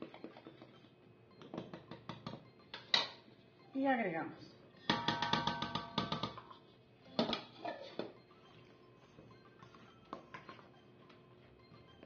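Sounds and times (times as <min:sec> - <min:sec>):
faint background music: 0:00.0 - 0:12.0
plastic bowl knocking on steel bowl: 0:04.9 - 0:06.4.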